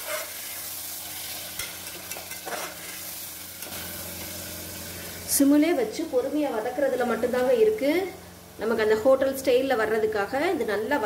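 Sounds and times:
metal spatula scraping pot: 0.0s - 0.4s, 1.6s - 3.0s
vegetables sizzling in oil: 0.0s - 11.0s.

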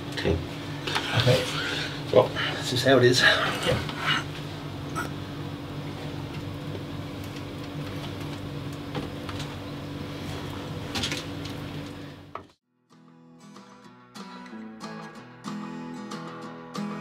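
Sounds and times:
low machine hum: 0.0s - 12.6s.

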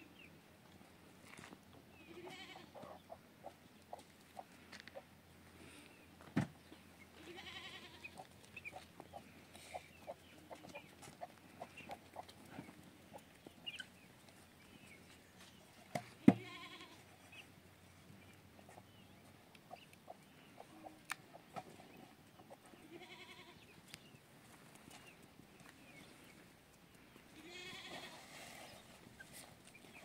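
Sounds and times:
goats bleating: 2.1s - 2.8s, 7.2s - 8.3s, 16.3s - 17.0s, 22.8s - 23.6s, 27.4s - 28.2s.

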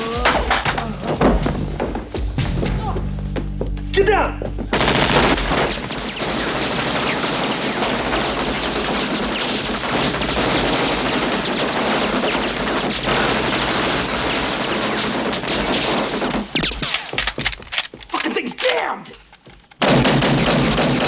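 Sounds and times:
rapid continuous gunfire: 4.7s - 17.3s, 19.8s - 21.0s.

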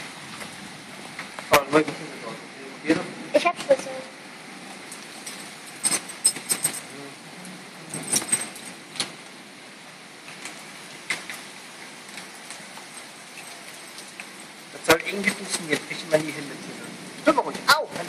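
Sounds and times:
keys jangling: 5.2s - 7.0s, 7.9s - 8.8s.

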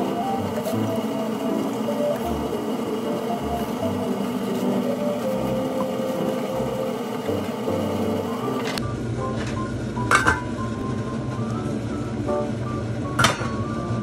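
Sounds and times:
steady rushing hum: 0.0s - 9.2s
gentle background music: 0.0s - 14.0s.

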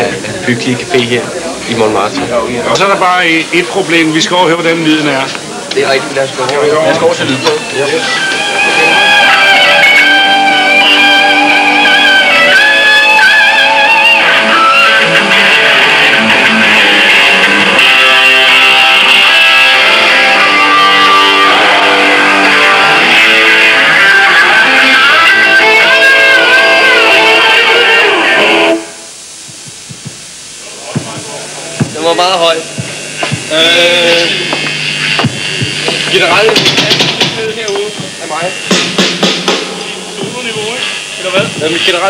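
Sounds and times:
rock band playing: 6.9s - 29.0s, 31.0s - 42.0s
wavering high lead guitar notes: 6.9s - 29.1s.

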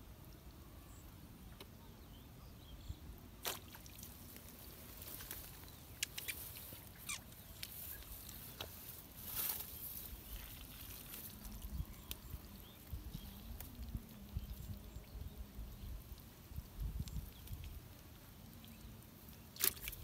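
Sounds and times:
light clicks and rustles: 3.5s - 14.8s
faint wind rumble: 7.6s - 18.3s.

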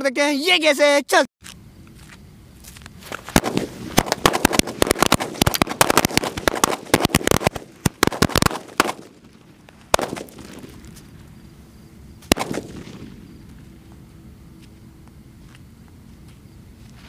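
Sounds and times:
firecrackers banging: 3.1s - 11.2s, 12.2s - 13.7s.

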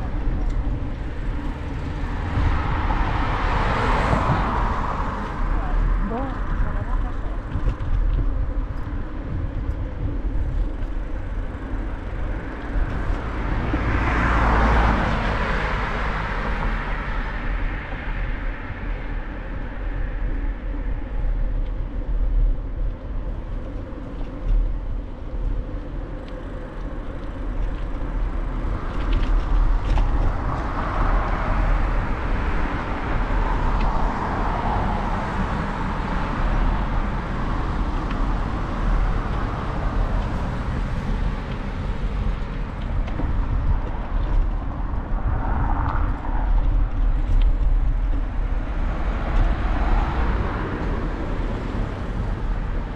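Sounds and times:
vehicle going by: 0.0s - 8.0s, 11.2s - 20.2s
car passing: 0.0s - 8.4s, 10.0s - 22.2s, 25.0s - 52.9s
steady low rumble: 0.0s - 52.9s.

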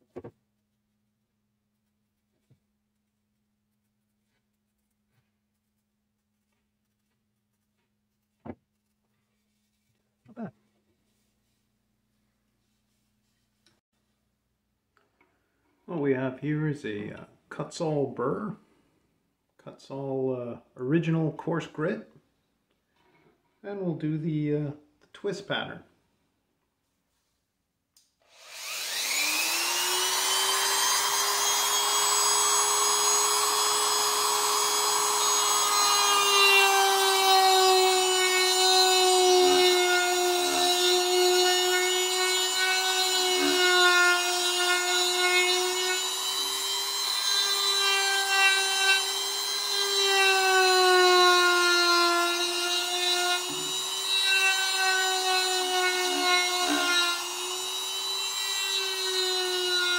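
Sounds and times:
rotary tool grinding wood: 28.3s - 59.9s.

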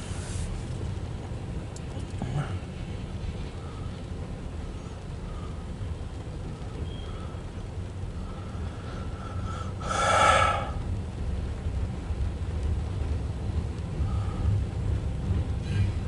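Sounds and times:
hopper cars rolling with low rumble: 0.0s - 16.0s.

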